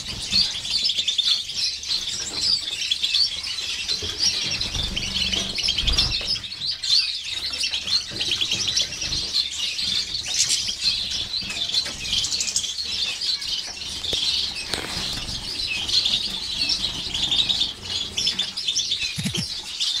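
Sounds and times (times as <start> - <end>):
finches chirping and twittering: 0.0 - 20.0
wings fluttering: 14.1 - 18.3.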